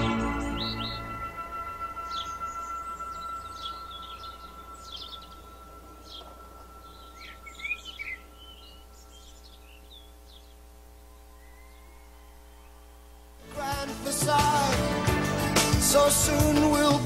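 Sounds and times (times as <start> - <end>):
held synth tone: 0.0 - 9.9
recorded birdsong chirps: 0.0 - 13.4.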